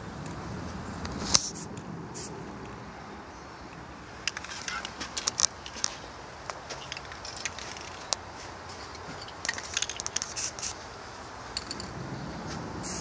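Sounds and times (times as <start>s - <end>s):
steady background hiss: 0.0s - 13.0s
spray can hissing: 9.8s - 10.8s.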